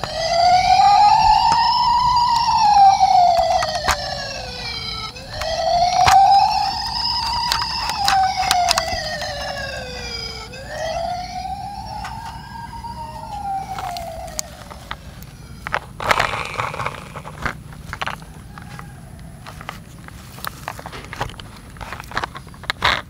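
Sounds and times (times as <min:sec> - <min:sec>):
toy siren wailing: 0:00.0 - 0:21.2
toy handling rustling: 0:00.0 - 0:23.0
plastic toy clicks: 0:07.2 - 0:09.6, 0:15.6 - 0:18.8, 0:20.7 - 0:23.0.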